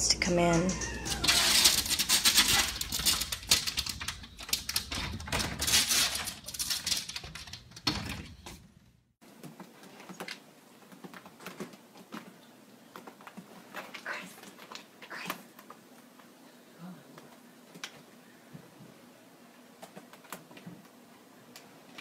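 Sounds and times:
cat claws clattering on screen door: 1.1 - 8.6.

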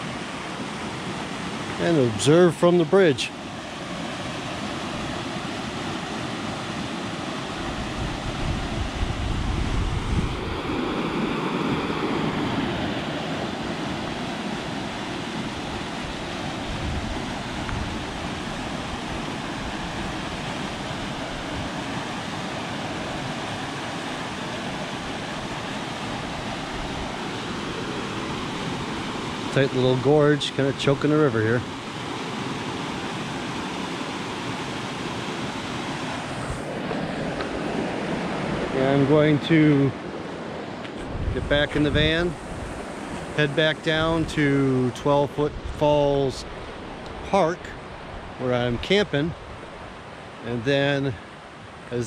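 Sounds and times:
whitewater rapids rushing: 0.0 - 9.5, 10.1 - 41.2
wind buffeting microphone: 7.2 - 22.2, 36.2 - 44.7, 45.4 - 47.2.

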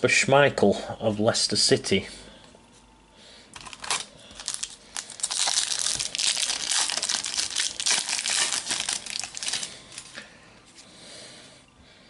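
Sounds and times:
foil packet crinkling: 3.6 - 10.2.

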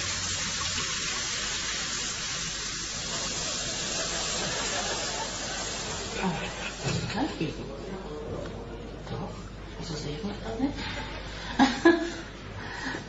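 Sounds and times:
water running from a tap: 0.0 - 7.2.

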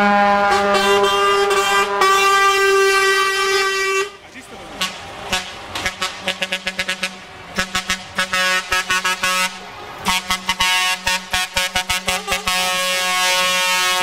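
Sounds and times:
truck air horns: 0.0 - 14.0
truck engines humming: 0.0 - 14.0.

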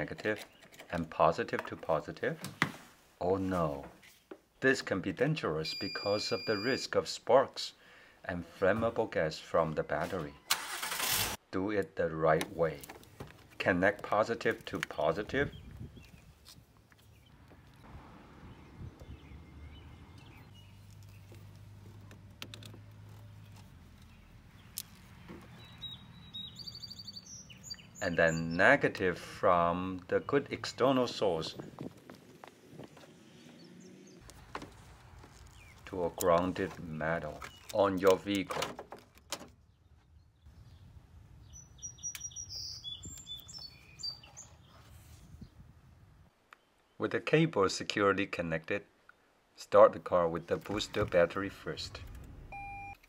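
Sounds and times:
birds chirping: 13.3 - 38.5, 39.6 - 45.7.

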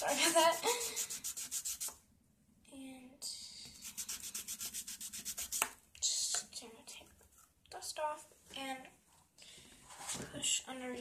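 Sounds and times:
nail file rasping on fingernail: 0.5 - 1.9, 3.8 - 5.6.

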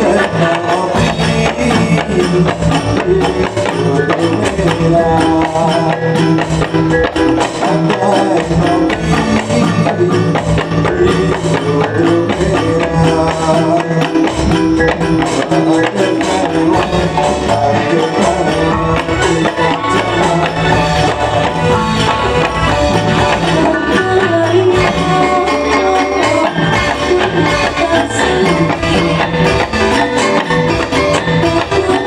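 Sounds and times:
steady percussion beat: 0.0 - 32.0
dance music melody: 16.8 - 32.0.

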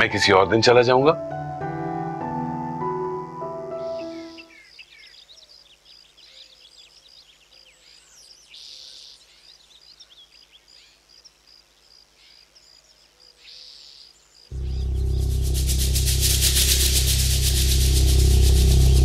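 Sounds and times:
small birds chirping: 3.8 - 18.7
brief hiss: 14.6 - 19.0.

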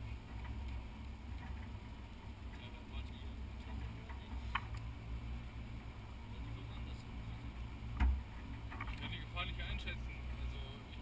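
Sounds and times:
car engine rumbling: 0.0 - 11.0
dull thump: 7.9 - 8.9.

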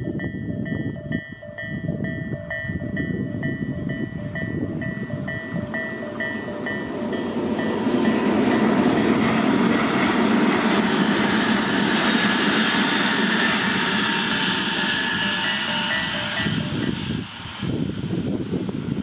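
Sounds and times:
level crossing warning bell: 0.0 - 12.1, 15.0 - 17.0
train rumbling past: 0.0 - 19.0.

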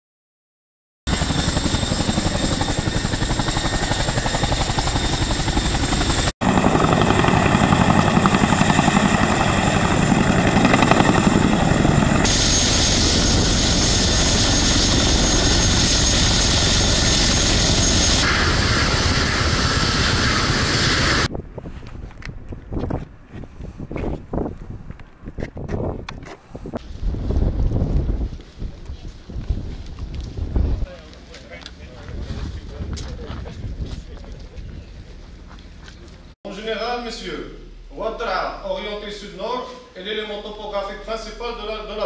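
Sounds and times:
helicopter rotors beating: 1.1 - 21.3.

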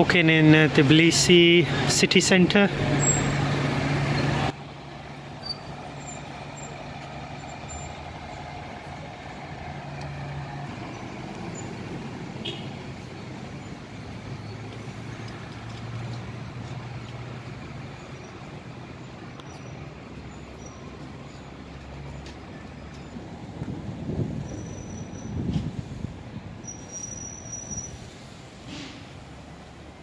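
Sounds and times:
road noise: 0.0 - 30.0
large vehicle engine running: 1.7 - 24.5.

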